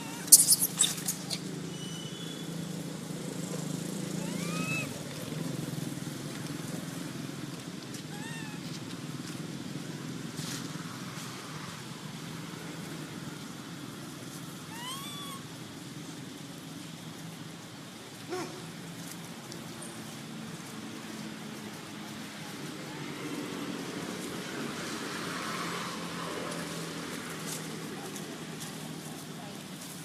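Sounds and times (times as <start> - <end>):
monkey squeaking calls: 0.0 - 2.0, 4.2 - 5.0, 8.1 - 8.6, 14.7 - 15.5.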